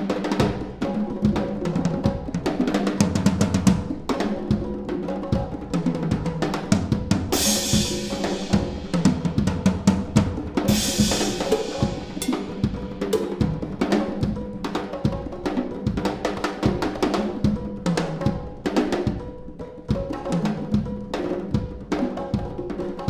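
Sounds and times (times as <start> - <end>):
drum kit solo: 0.0 - 23.0
cymbal crashes: 7.4 - 9.2, 10.7 - 13.3.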